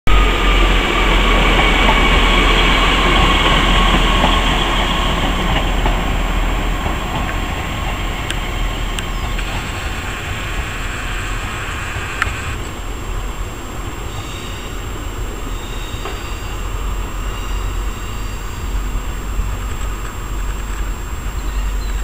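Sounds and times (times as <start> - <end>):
diesel train engine whining: 0.0 - 22.0
sharp clicks: 8.2 - 12.7.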